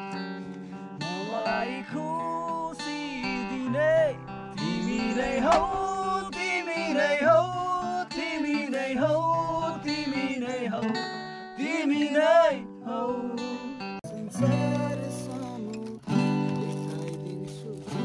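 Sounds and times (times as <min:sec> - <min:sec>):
strummed acoustic guitar: 0:00.0 - 0:18.0
man singing: 0:01.0 - 0:18.0.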